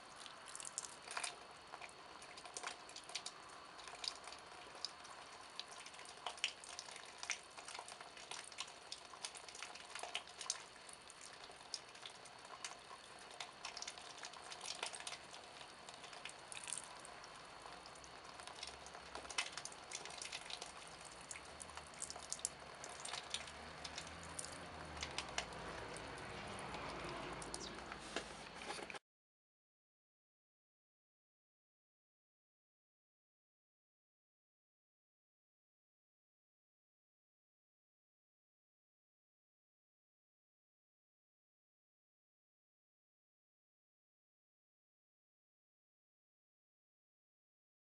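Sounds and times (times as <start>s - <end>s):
liquid dripping: 0.0s - 28.6s.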